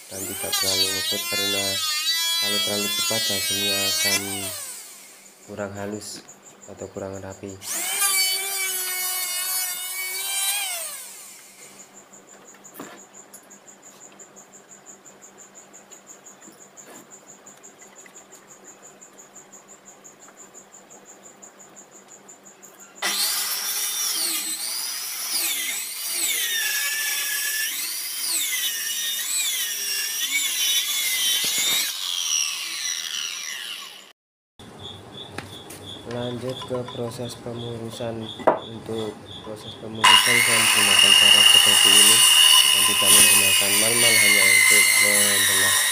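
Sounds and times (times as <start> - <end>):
circular saw cutting wood: 0.0 - 5.3, 7.6 - 11.9, 23.0 - 34.1, 40.0 - 45.9
high insect trill: 0.1 - 23.1, 34.7 - 45.9
electric hand planer on wood: 0.2 - 5.0, 7.7 - 11.3, 40.0 - 45.9.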